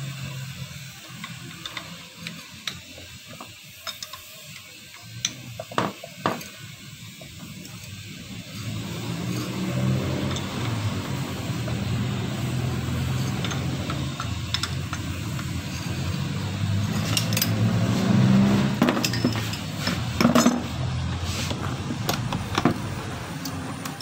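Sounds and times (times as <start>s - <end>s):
steady low hum: 8.2s - 23.8s
metal clinks and knocks: 18.8s - 20.7s.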